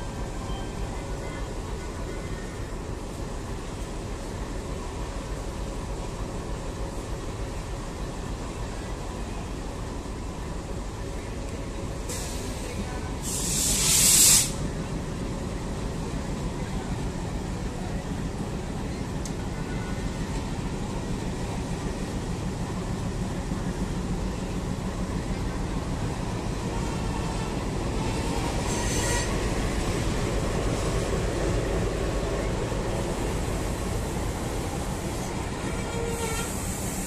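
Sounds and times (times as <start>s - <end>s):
diesel locomotive running: 0.0s - 37.0s
train coaches rolling on rails: 0.0s - 37.0s
short high hiss: 13.2s - 14.6s.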